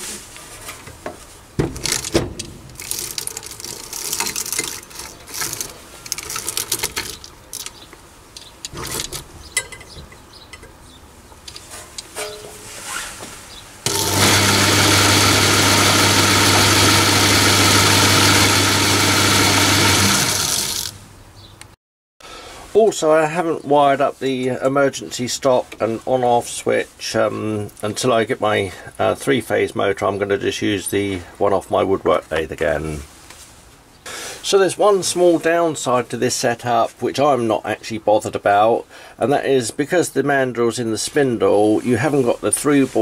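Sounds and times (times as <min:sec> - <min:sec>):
electric motor humming and whirring: 0:13.9 - 0:21.0.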